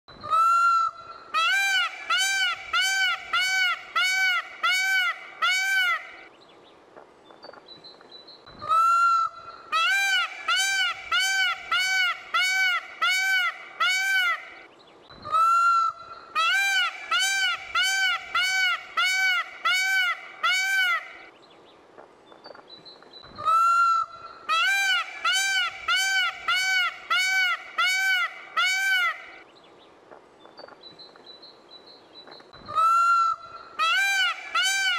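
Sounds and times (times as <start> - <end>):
peacock honking calls: 0.2 - 6.2, 8.6 - 14.6, 15.3 - 21.3, 23.4 - 29.4, 32.7 - 34.9.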